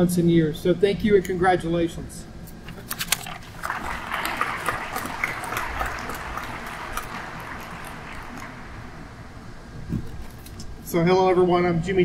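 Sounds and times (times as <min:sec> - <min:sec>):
audience applauding: 0:03.3 - 0:09.6.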